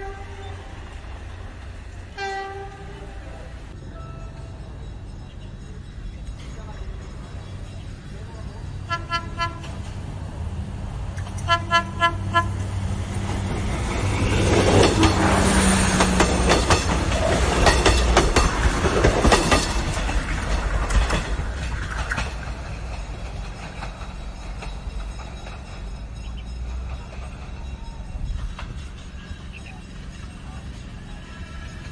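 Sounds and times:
train horn toots: 0.0 - 1.0, 2.1 - 4.5, 8.9 - 9.9, 11.4 - 12.8
train wheels clattering on rails: 3.7 - 31.9.

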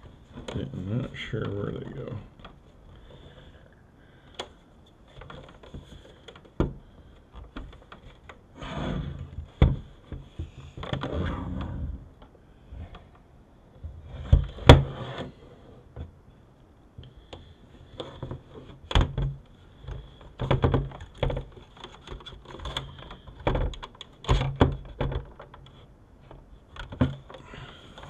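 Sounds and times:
scraping and rustling: 13.8 - 16.1.

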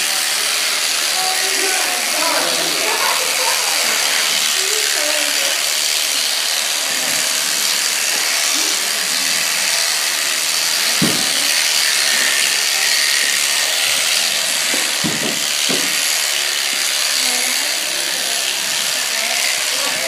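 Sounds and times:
electric shears whirring: 0.0 - 20.0
low knocks: 11.0 - 11.4, 14.7 - 16.0.

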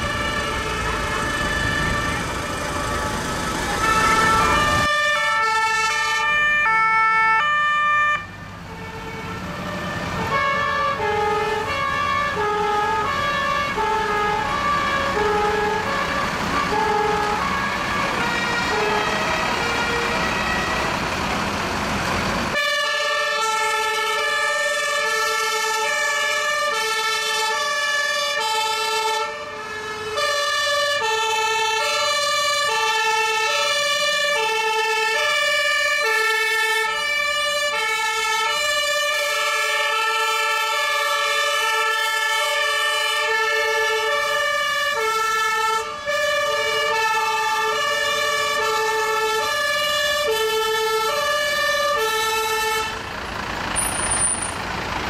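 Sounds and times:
fire engine two-tone sirens: 0.0 - 55.0.

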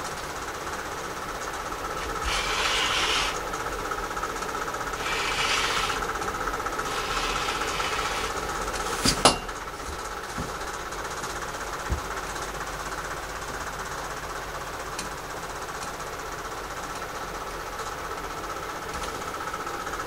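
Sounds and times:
electric fan rattling: 0.0 - 20.0
rotary cutter slicing fabric: 1.8 - 3.7, 4.9 - 9.4
ruler clacking: 1.9 - 3.5, 5.0 - 6.2, 6.8 - 9.5.

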